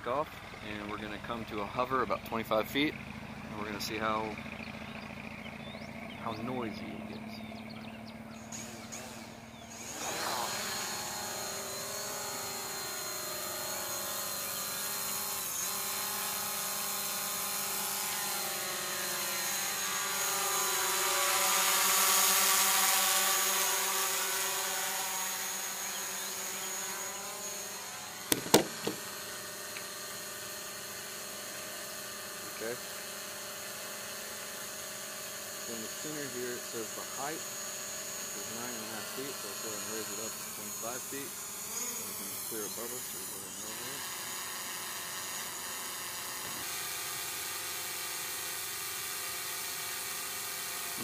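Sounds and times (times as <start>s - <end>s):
drone propellers buzzing: 0.0s - 51.0s
sharp clicks: 28.3s - 29.1s.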